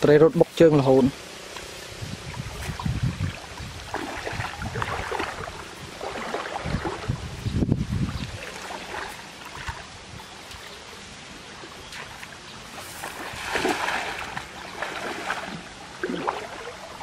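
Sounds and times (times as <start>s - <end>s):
water sloshing around legs: 1.5s - 7.4s, 8.1s - 17.0s
cast net splashing into water: 2.5s - 7.1s, 11.9s - 16.9s.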